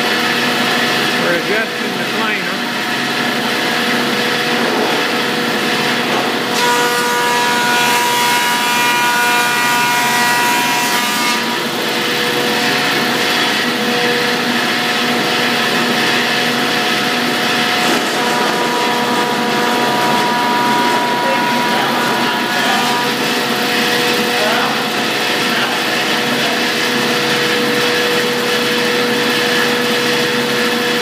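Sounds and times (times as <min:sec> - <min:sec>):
planer cutting boards: 0:00.0 - 0:31.0
wood planer whining: 0:00.0 - 0:31.0.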